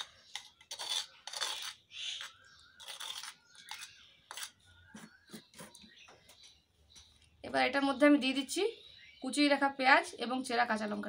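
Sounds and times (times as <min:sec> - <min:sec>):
faint scraping in a bowl: 0:00.0 - 0:05.8.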